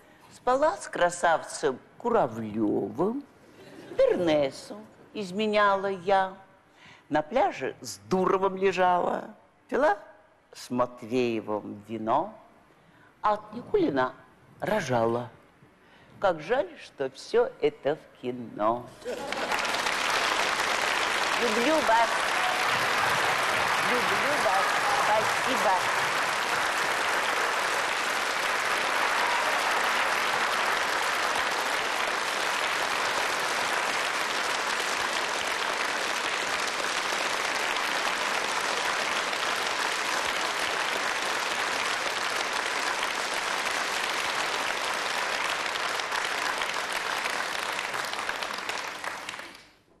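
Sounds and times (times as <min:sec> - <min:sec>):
audience applauding: 0:19.1 - 0:49.8.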